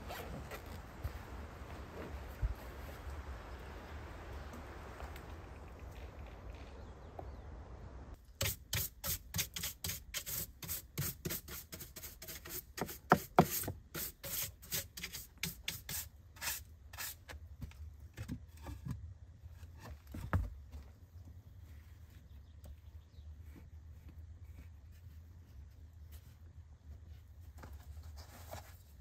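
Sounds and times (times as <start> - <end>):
brush sweeping wooden bench: 8.2 - 17.4.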